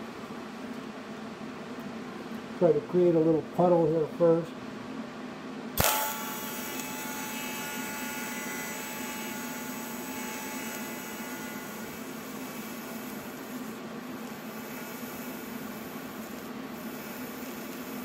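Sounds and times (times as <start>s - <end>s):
welding arc hissing: 5.8s - 18.0s.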